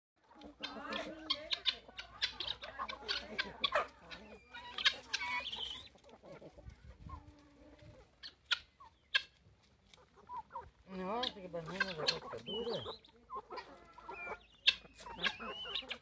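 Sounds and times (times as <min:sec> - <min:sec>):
chickens clucking: 0:00.2 - 0:16.0.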